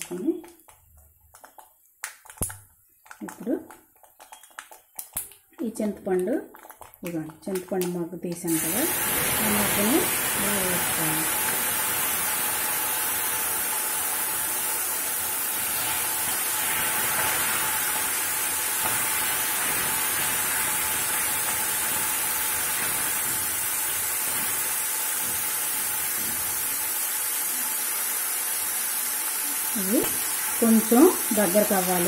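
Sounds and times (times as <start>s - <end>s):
liquid sizzling in hot oil: 0.0s - 32.0s.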